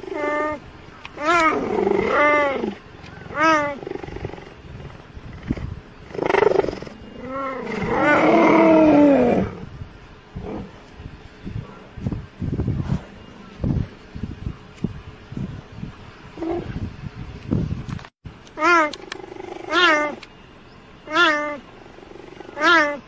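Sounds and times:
cheetahs meowing: 0.0 - 4.5, 18.6 - 20.2, 21.1 - 23.0.

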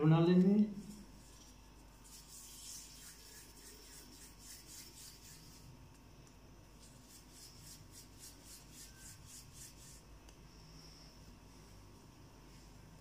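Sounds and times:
palms rubbing dough: 0.8 - 5.8, 6.8 - 10.2.

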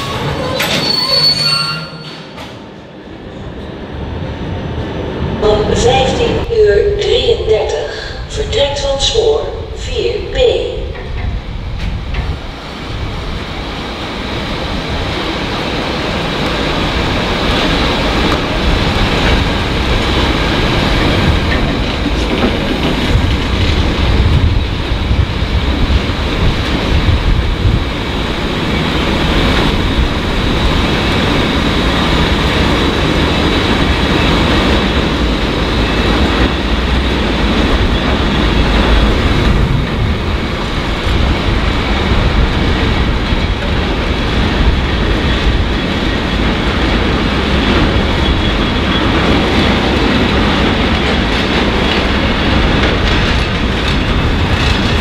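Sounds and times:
high wheel squeal: 0.0 - 2.3
train wheels rumbling: 0.0 - 55.0.

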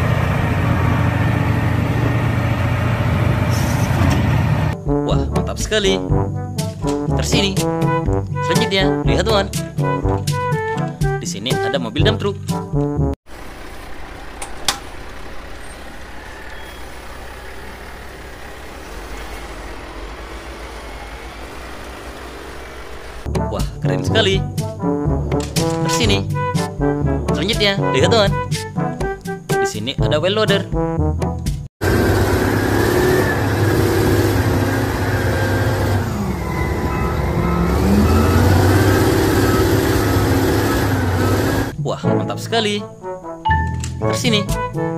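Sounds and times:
diesel truck engine running: 0.0 - 4.8, 13.3 - 23.3, 31.8 - 41.8
tyres rolling over gravel: 13.3 - 23.3, 31.8 - 41.7.

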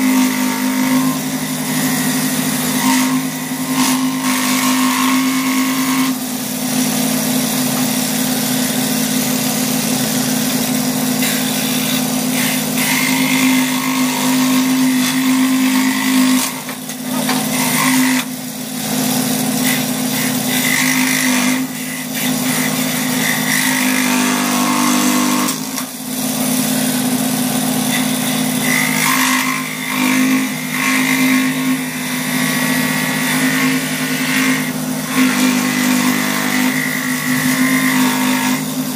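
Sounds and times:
scroll saw cutting wood: 0.0 - 38.9.

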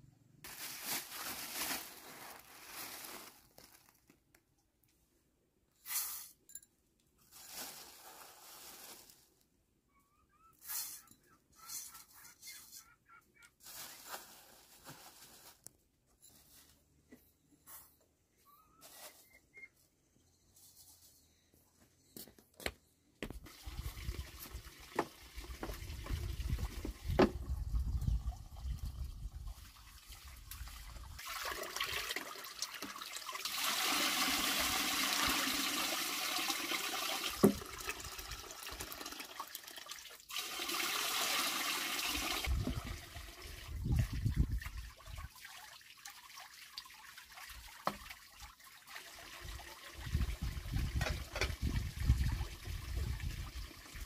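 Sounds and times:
water pouring from a hose: 23.5 - 54.0.

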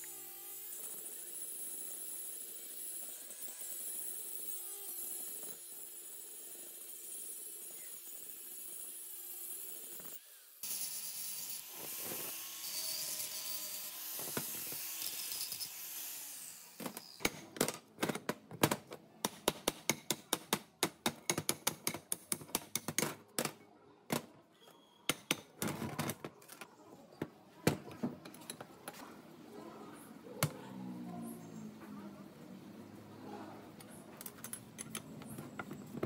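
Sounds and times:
angle grinder cutting metal: 0.0 - 17.3.

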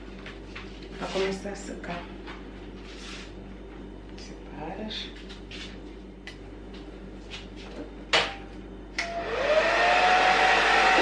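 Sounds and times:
hair dryer blowing: 9.0 - 11.0.

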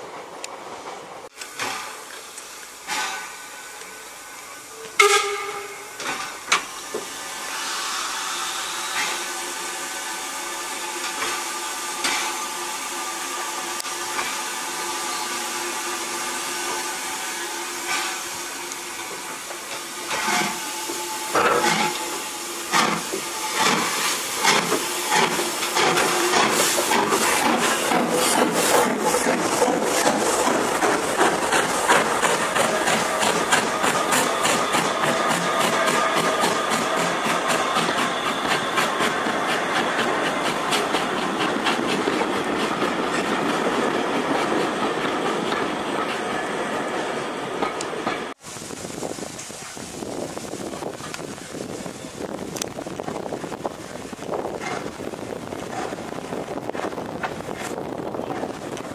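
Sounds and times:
steam hissing: 0.6 - 58.9
steam locomotive whistle: 2.9 - 6.2, 7.2 - 25.6.

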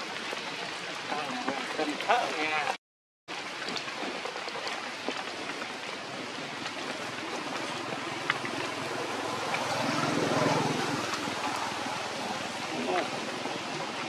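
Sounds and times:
steady outdoor rushing noise: 4.1 - 14.0.

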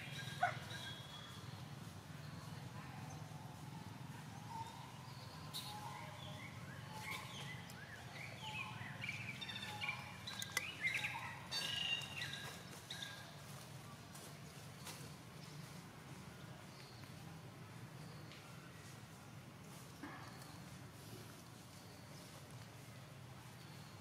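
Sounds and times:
high chirping and squealing calls: 6.5 - 13.2.

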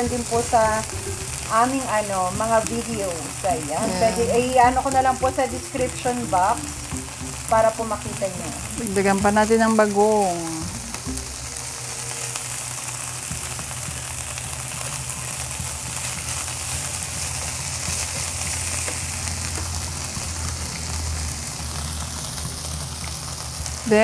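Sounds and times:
food sizzling in a frying pan: 0.0 - 24.0.

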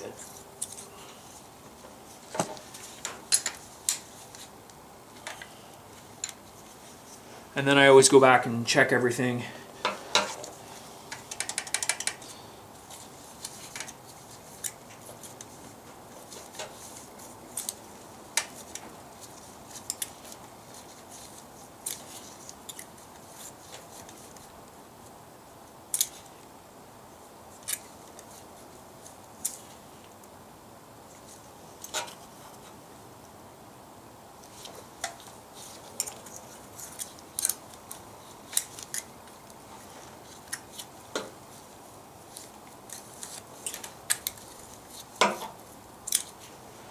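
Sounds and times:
metallic clicks of hand tools: 11.1 - 12.2.

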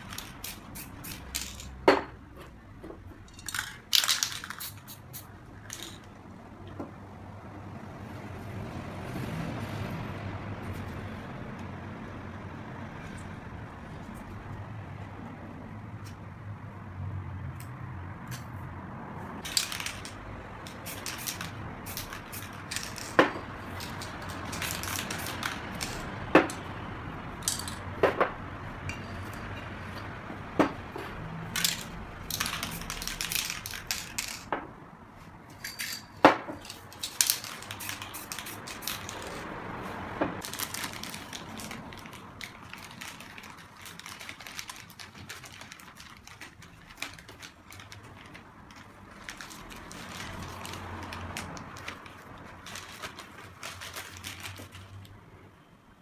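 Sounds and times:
spray-paint can hissing: 0.0 - 1.7, 3.5 - 6.0, 20.7 - 26.0, 31.7 - 34.4, 37.0 - 39.4
metal cans clinking on a table: 35.5 - 37.5.

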